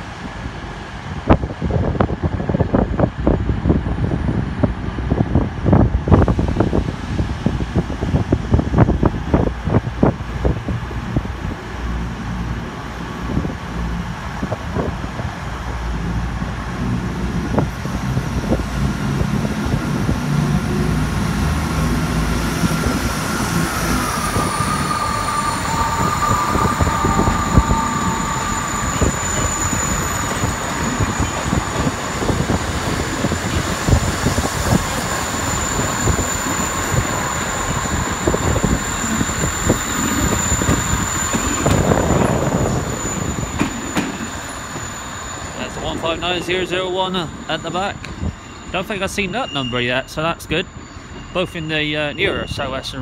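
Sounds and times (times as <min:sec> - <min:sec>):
diesel train engines throttling up: 0:00.0 - 0:53.0
high-pitched train whine: 0:06.1 - 0:53.0
train clatter and clicks: 0:26.0 - 0:49.3.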